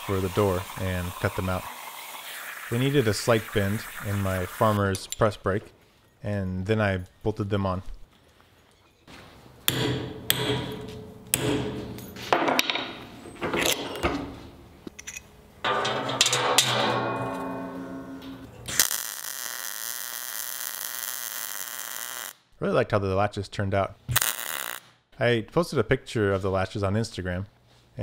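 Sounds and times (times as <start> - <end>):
hammer striking steel: 9.6 - 13.1, 15.6 - 18.7
welder crackling hiss: 18.7 - 22.4.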